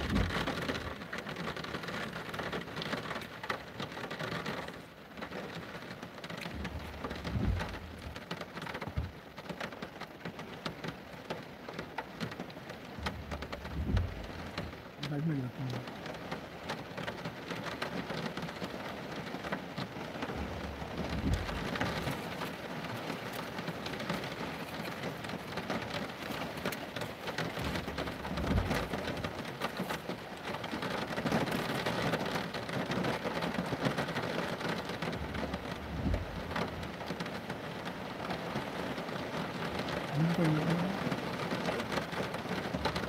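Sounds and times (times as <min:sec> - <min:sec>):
low rumbles: 0:00.0 - 0:01.2, 0:06.4 - 0:09.2, 0:12.8 - 0:15.9, 0:20.1 - 0:30.7, 0:35.1 - 0:37.1
heavy rain splashing on paving: 0:00.0 - 0:43.0.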